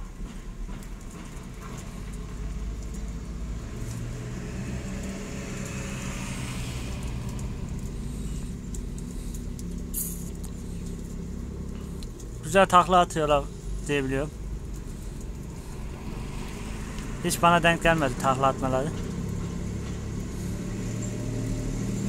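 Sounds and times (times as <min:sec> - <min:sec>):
vehicle engine humming: 0:00.0 - 0:22.0
light ticks: 0:00.7 - 0:03.2, 0:04.9 - 0:05.9, 0:07.0 - 0:08.0, 0:08.6 - 0:12.4, 0:16.9 - 0:17.2.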